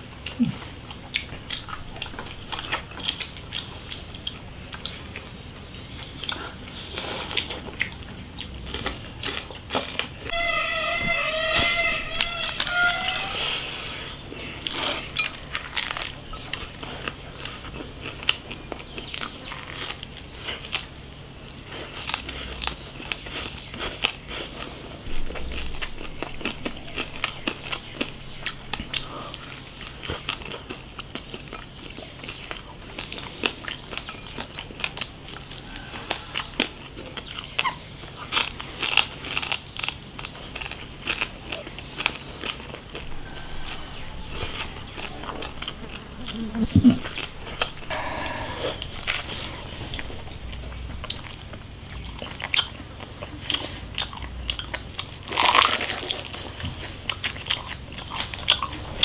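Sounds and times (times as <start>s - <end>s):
person chewing crispy meat: 0.0s - 10.4s, 11.2s - 59.0s.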